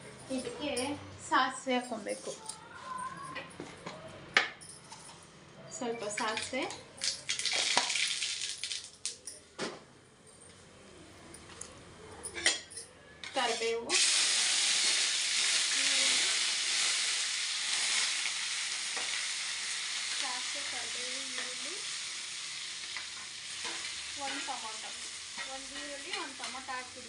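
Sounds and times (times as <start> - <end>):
onion and tomato sizzling in oil: 7.0 - 8.8, 13.4 - 27.0.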